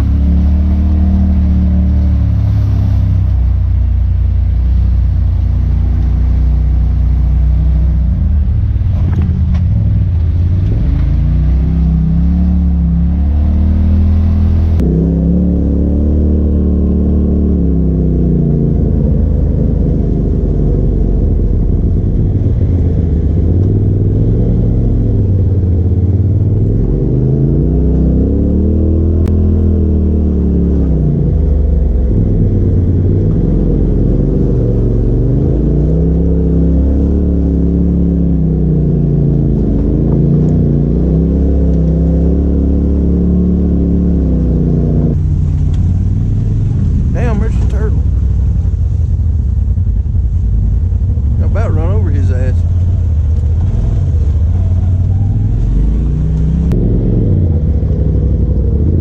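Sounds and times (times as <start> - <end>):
utility vehicle engine revving: 0.0 - 59.0.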